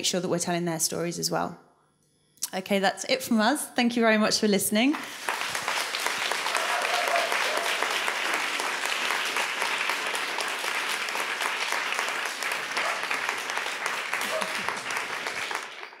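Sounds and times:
audience applauding: 0:05.0 - 0:16.0.

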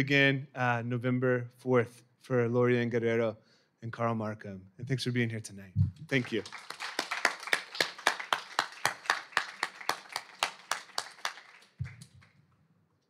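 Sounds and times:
people clapping: 0:06.0 - 0:12.4.

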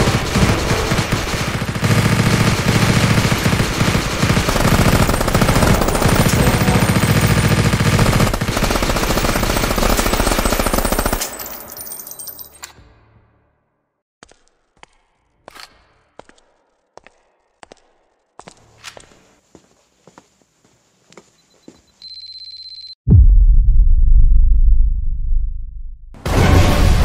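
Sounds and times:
automatic gunfire: 0:00.0 - 0:11.3.

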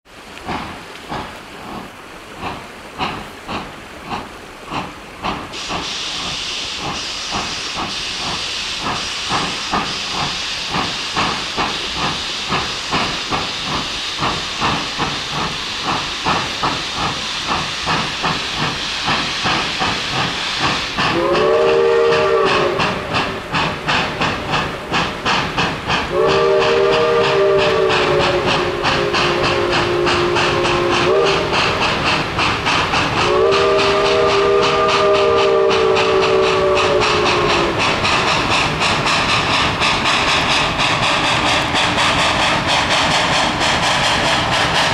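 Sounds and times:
steam hissing: 0:00.1 - 0:44.9
steam locomotive exhaust chuffs: 0:00.1 - 0:44.9
steam whistle blasts: 0:20.4 - 0:23.5, 0:26.1 - 0:31.8, 0:33.2 - 0:37.9.

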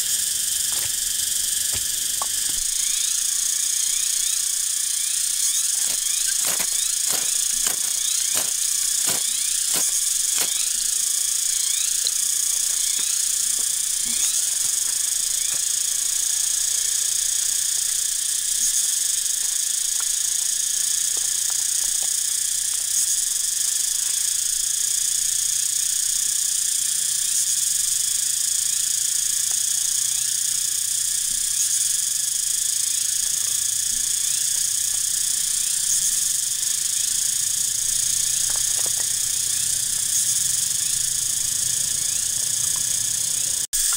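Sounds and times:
insects chorus: 0:00.0 - 0:43.9.

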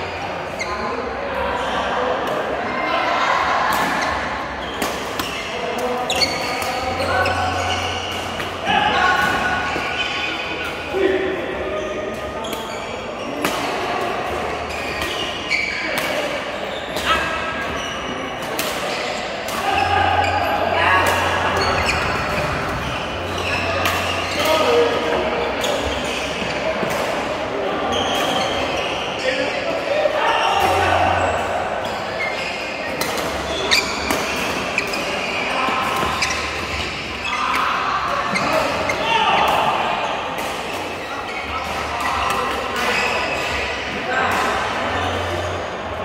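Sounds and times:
sports shoes squeaking on floor: 0:00.1 - 0:00.9, 0:04.0 - 0:08.7, 0:11.8 - 0:13.4, 0:14.5 - 0:16.0, 0:16.6 - 0:18.4, 0:19.0 - 0:26.7, 0:27.8 - 0:29.5, 0:30.9 - 0:40.2, 0:41.0 - 0:43.9.

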